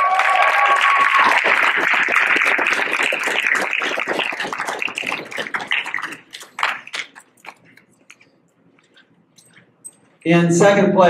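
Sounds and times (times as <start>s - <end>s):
small crowd applauding: 0.0s - 7.6s.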